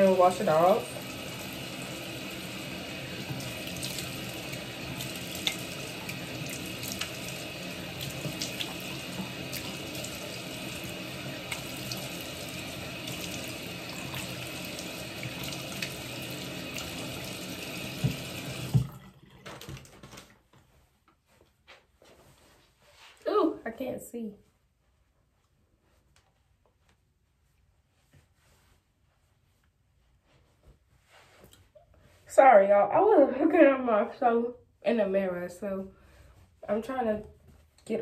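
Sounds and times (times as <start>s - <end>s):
sink tap running: 0.0s - 20.0s
water splashes and drips: 0.0s - 20.2s.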